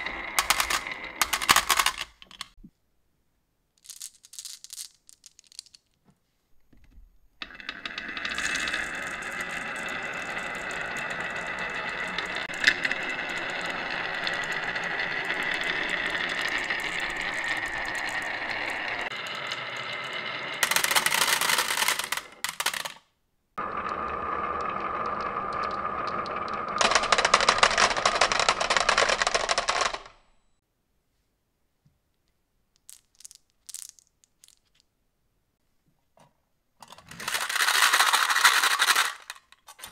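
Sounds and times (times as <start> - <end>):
marbles clattering into tin: 0.0 - 2.6, 3.8 - 6.0, 7.4 - 30.2, 32.8 - 34.8, 36.8 - 39.9
marbles rolling on wood: 0.0 - 2.6, 3.8 - 6.0, 7.4 - 30.3, 32.8 - 34.9, 36.8 - 39.9.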